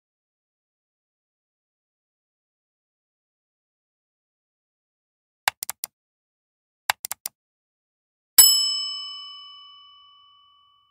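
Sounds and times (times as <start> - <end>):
mouse clicks: 5.5 - 5.9, 6.9 - 7.4
bright bell ding: 8.4 - 10.9.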